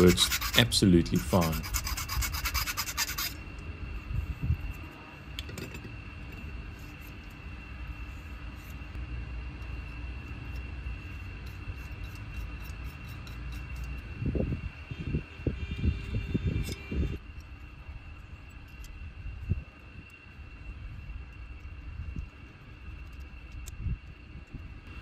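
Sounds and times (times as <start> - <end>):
file rasping inside copper pipe: 0.0 - 3.4, 11.2 - 14.0
steady low hum: 0.0 - 25.0.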